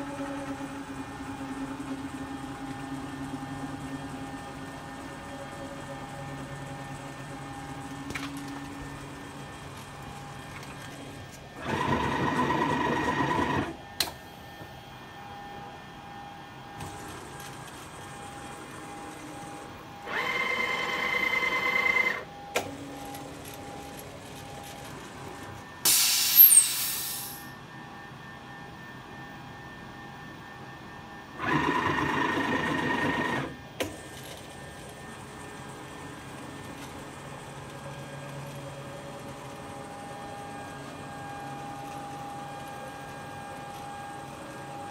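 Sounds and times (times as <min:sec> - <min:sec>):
low machine hum: 0:00.0 - 0:26.6
milling spindle whine: 0:15.0 - 0:25.8
loud hiss with falling whistle: 0:25.8 - 0:27.5.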